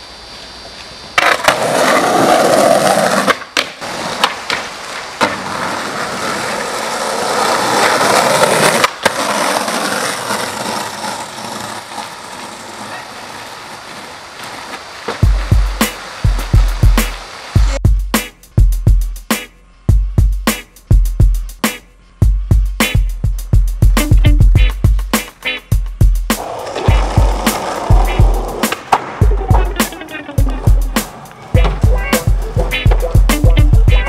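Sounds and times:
skateboard wheels rolling on asphalt: 0.0 - 17.8, 22.9 - 25.7, 26.3 - 34.0
skateboard clacking on ground: 0.8 - 17.2, 26.4 - 34.0
music with heavy bass drum beat: 15.2 - 34.0.

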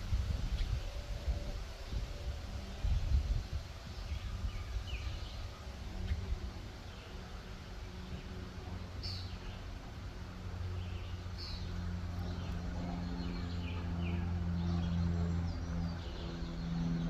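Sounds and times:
birds chirping: 4.0 - 17.0.

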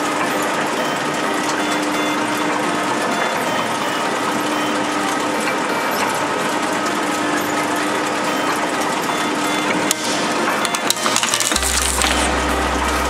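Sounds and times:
motor hum: 0.0 - 13.0
shredder cutters rattling: 0.0 - 13.0.

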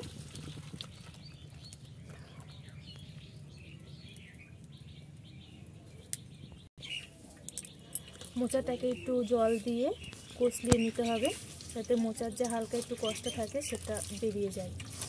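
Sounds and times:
birds chirping faintly: 0.8 - 14.7
water splashing into colander: 10.6 - 15.0.

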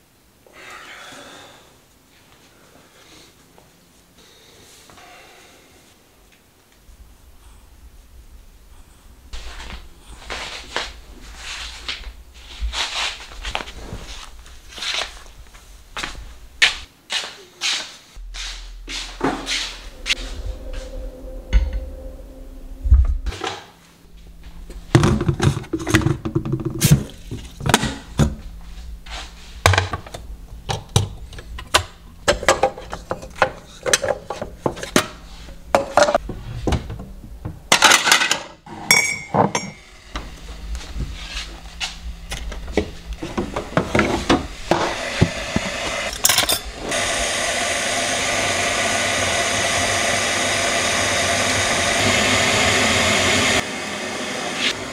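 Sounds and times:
steady rushing noise: 18.2 - 25.0
dishes and cutlery clinking: 37.8 - 39.8.

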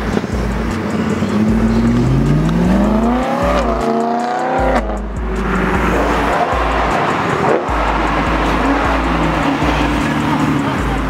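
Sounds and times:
car engine revving: 0.0 - 11.0
thumping bass beat: 0.0 - 11.0.

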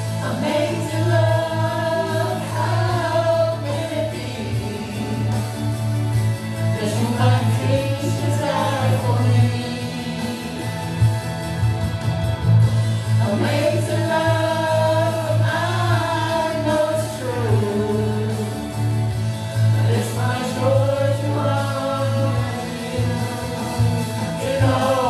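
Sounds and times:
group of voices singing: 0.0 - 11.5, 12.7 - 25.0
gospel accompaniment with low bass: 0.0 - 25.0.

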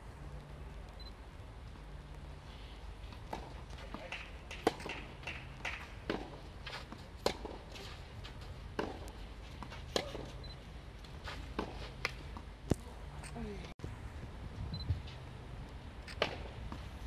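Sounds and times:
tennis ball struck by rackets: 3.3 - 7.6, 8.7 - 10.3, 16.2 - 16.8
shoes scuffing on clay: 5.7 - 12.5.

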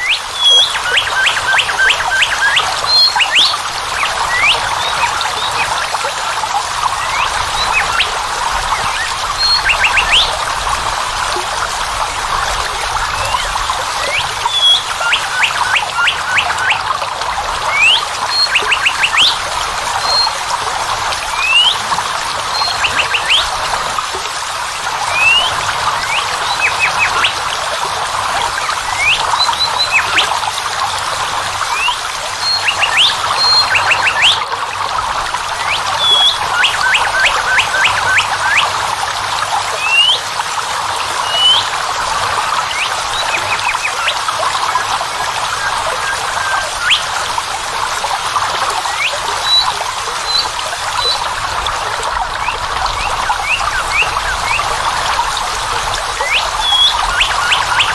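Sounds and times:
waterfall rushing: 0.0 - 57.9
birds chirping: 6.9 - 10.3, 13.2 - 16.9, 17.7 - 19.4, 21.3 - 23.5, 28.6 - 30.4, 31.7 - 34.4, 52.4 - 54.8, 56.2 - 57.9.

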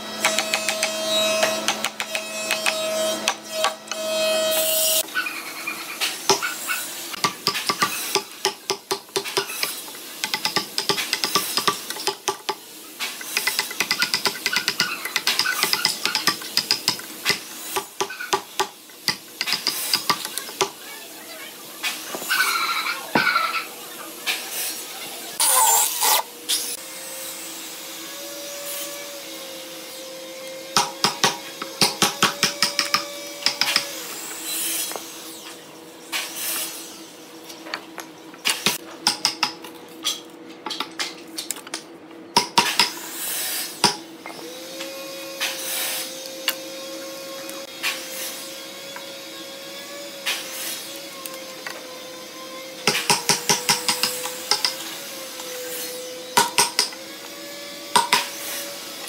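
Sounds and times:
hand tools tapping and clicking: 0.2 - 4.0, 7.2 - 20.8, 30.8 - 33.9, 52.9 - 54.8, 57.9 - 58.3.

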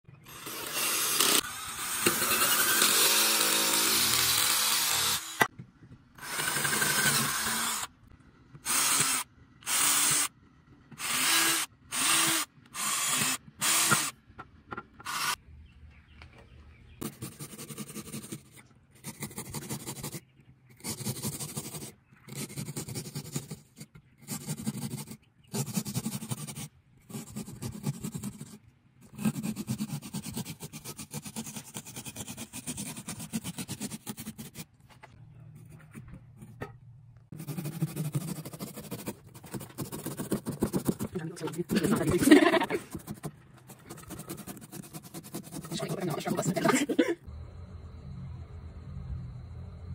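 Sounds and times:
cordless drill drilling pumpkin: 0.2 - 5.5, 6.2 - 8.0, 8.6 - 10.3, 11.0 - 14.1, 15.0 - 15.4.

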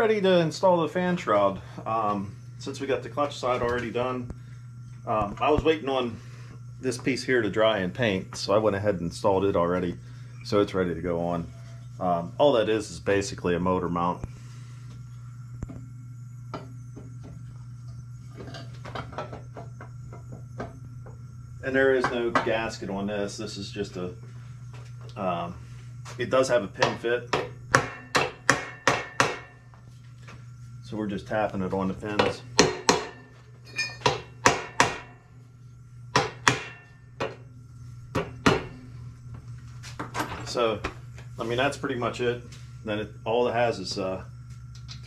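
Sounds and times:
steady low hum: 0.0 - 45.0
hammer tapping metal: 26.8 - 29.6, 32.2 - 35.2, 36.1 - 37.4.

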